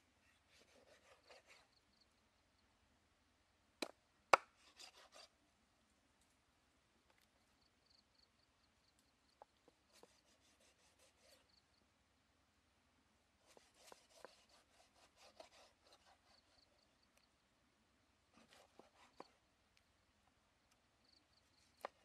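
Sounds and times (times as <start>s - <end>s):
knife scraping on board: 4.6s - 5.3s, 13.5s - 16.2s.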